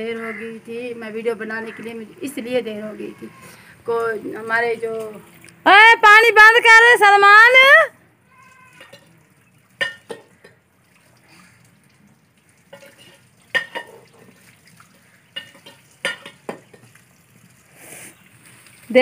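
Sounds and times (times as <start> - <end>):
water splashing: 8.4 - 19.0.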